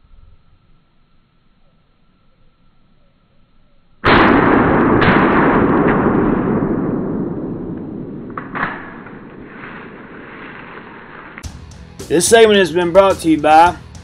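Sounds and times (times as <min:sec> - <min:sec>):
shotgun shot: 0:04.0 - 0:11.4
sharp cracks: 0:04.0 - 0:11.5.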